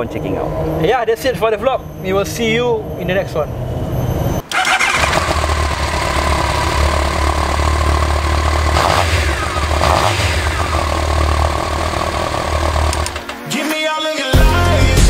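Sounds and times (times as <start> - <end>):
motorcycle engine idling and revving: 4.4 - 13.3.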